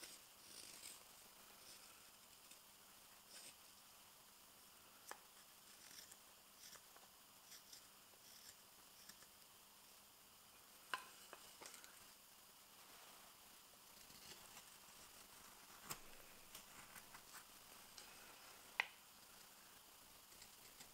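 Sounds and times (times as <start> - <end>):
knife carving wood: 0.0 - 1.9, 3.2 - 3.6, 5.0 - 9.4, 13.9 - 19.5, 20.1 - 20.9.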